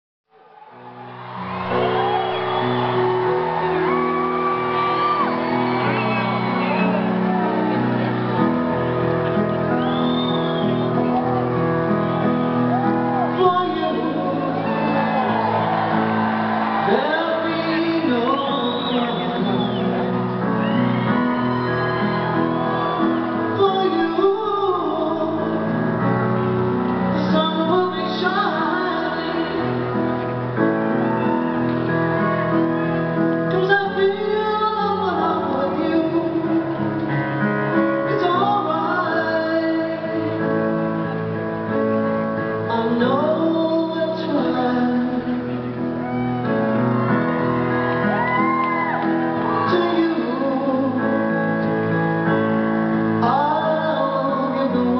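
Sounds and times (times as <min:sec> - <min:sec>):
piano accompaniment: 0:00.4 - 0:54.9
woman singing a ballad: 0:13.3 - 0:15.3, 0:16.7 - 0:19.9, 0:23.5 - 0:25.9, 0:27.1 - 0:30.2, 0:33.5 - 0:37.1, 0:37.8 - 0:40.8, 0:42.6 - 0:46.0, 0:49.4 - 0:51.6, 0:53.2 - 0:54.9.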